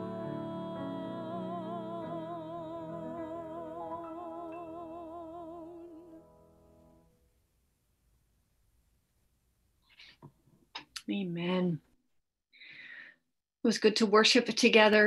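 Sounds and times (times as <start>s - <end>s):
woman singing a hymn: 0.0s - 6.2s
grand piano chords: 0.0s - 7.0s.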